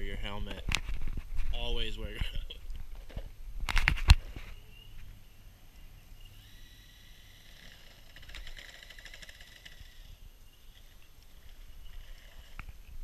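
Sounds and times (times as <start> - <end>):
high electric motor whine: 6.1 - 10.2.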